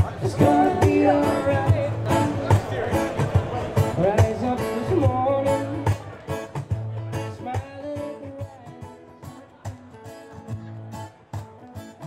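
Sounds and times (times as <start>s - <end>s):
man singing: 0.0s - 3.0s, 3.8s - 6.2s, 7.2s - 9.1s
guitar playing: 0.0s - 12.0s.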